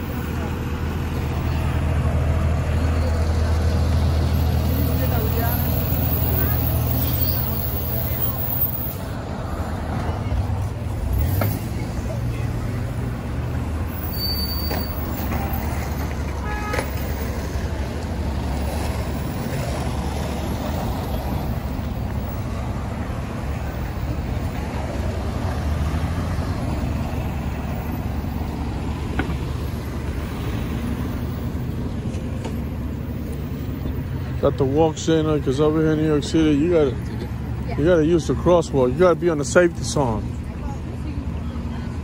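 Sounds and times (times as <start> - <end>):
bus engine pulling away: 0.0 - 42.0
cars passing: 0.0 - 42.0
short high squeal: 13.9 - 15.7.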